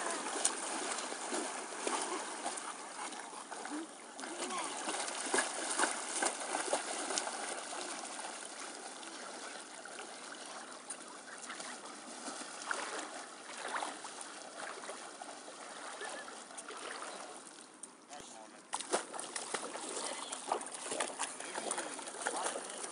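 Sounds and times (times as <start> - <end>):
shallow water splashing: 0.0 - 17.8, 18.7 - 22.9.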